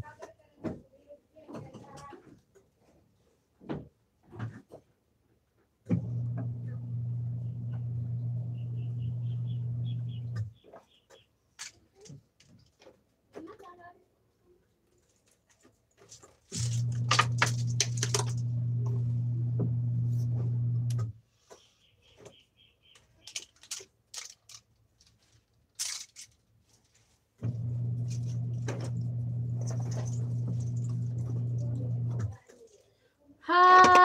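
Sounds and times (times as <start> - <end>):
washing machine motor humming: 5.9 - 10.5, 16.6 - 21.2, 27.4 - 32.4
plastic clothes hangers clattering: 15.2 - 18.4, 23.1 - 27.2.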